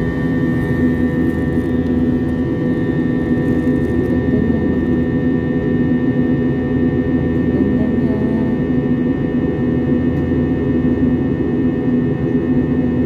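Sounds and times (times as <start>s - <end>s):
airliner cabin engine drone: 0.0s - 13.0s.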